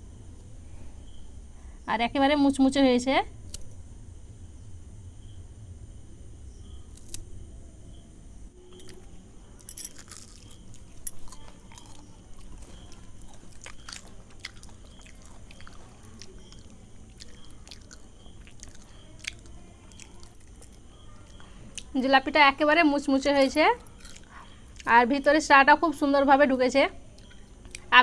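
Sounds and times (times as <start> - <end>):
crisp sweet crunching and chewing: 6.8 - 7.2, 8.6 - 22.1, 23.2 - 25.0, 27.1 - 28.0.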